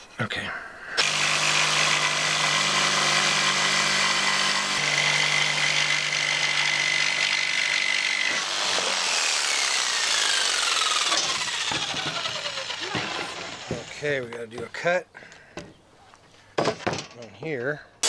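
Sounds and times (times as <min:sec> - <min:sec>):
jigsaw cutting wood: 0:01.0 - 0:14.2.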